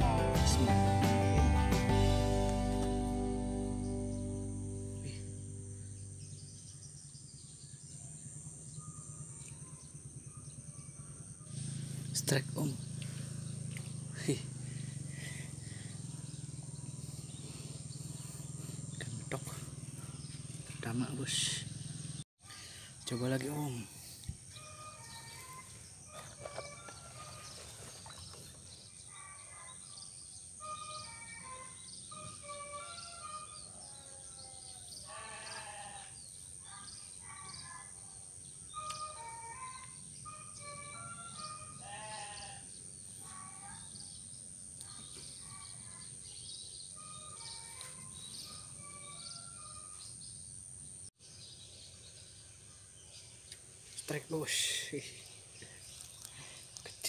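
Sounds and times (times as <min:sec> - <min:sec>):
short clear notes: 0:00.0 - 0:05.8
birds chirping: 0:00.0 - 0:57.0.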